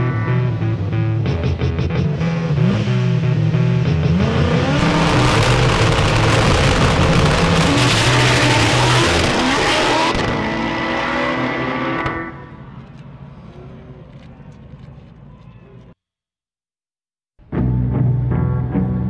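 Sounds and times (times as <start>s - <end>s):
race car accelerating: 0.0s - 12.6s
background music: 17.4s - 19.0s.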